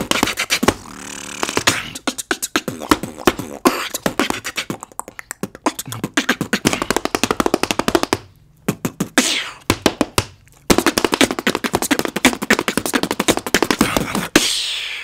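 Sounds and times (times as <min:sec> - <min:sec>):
person beatboxing: 0:00.0 - 0:15.0
tap shoes tapping: 0:05.4 - 0:14.2.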